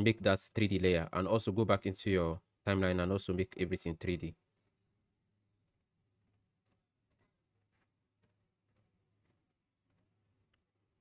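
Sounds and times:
computer mouse clicks: 0:05.7 - 0:08.9, 0:09.8 - 0:10.7.

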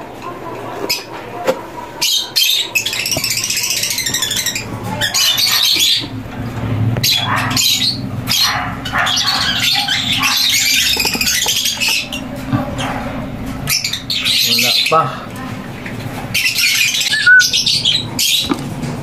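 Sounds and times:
lovebirds chattering and squawking: 0:01.9 - 0:18.8.

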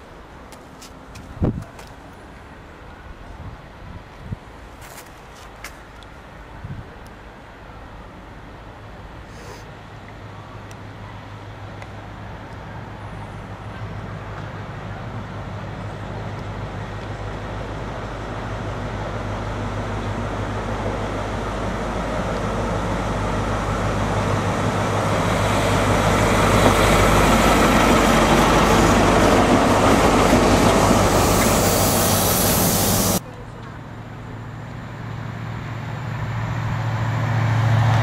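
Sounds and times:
train diesel engine approaching: 0:06.2 - 0:38.0
train coaches rolling past: 0:09.8 - 0:38.0.

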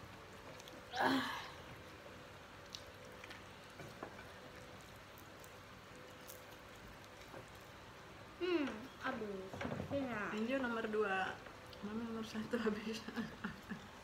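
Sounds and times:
squishy eating sounds: 0:00.0 - 0:08.0
faint steady hum: 0:00.0 - 0:14.0.

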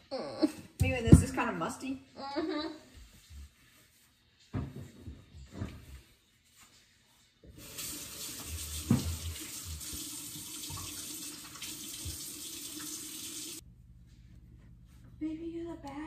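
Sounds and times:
kitchen tap water running: 0:07.5 - 0:13.6.

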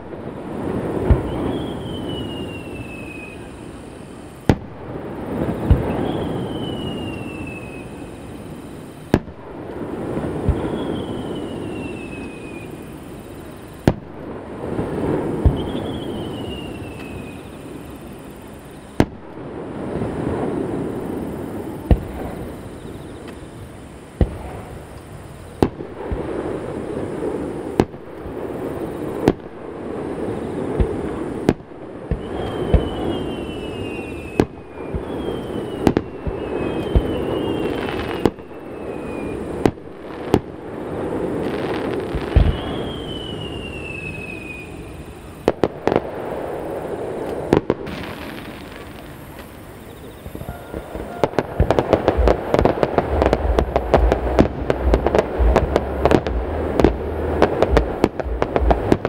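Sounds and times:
fireworks bangs: 0:00.0 - 0:59.0
fireworks whistles falling in pitch: 0:00.0 - 0:59.0
rumbling echo off mountains: 0:38.4 - 0:59.0.

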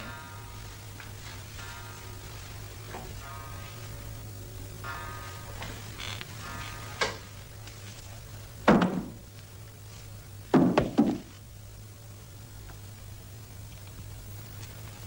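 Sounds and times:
steady low hum: 0:00.0 - 0:15.0
wooden bed knocks and thumps: 0:08.7 - 0:09.2, 0:10.5 - 0:11.4.

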